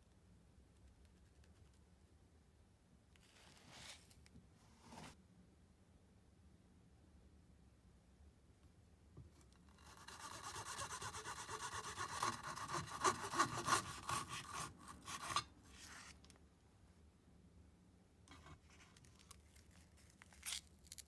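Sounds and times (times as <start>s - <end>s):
knife sawing through ice lolly: 9.9s - 15.4s.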